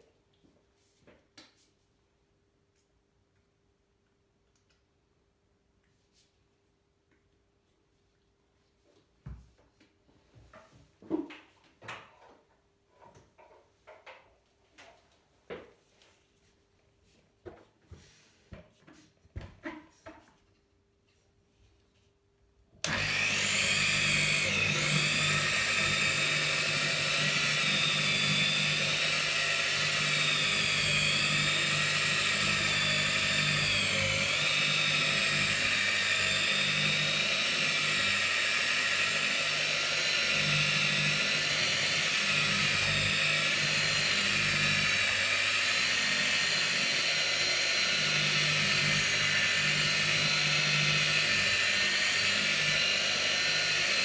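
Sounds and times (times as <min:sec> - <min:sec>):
electric polisher motor whine: 0:22.8 - 0:54.0.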